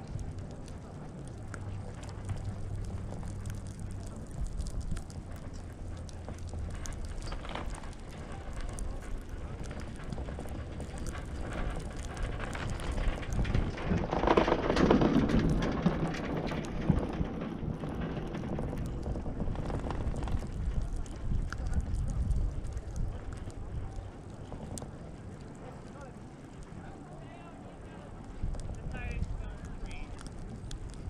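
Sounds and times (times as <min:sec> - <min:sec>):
chair rumbling over lift tower: 0:00.0 - 0:31.0
chairlift cable noise: 0:00.0 - 0:31.0.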